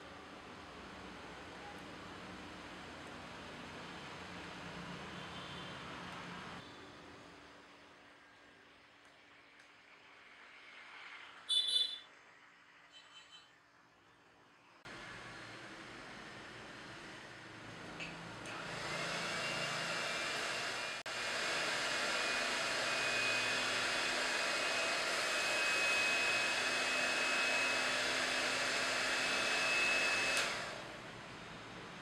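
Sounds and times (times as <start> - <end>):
hand mixer motor whining: 18.4 - 31.0.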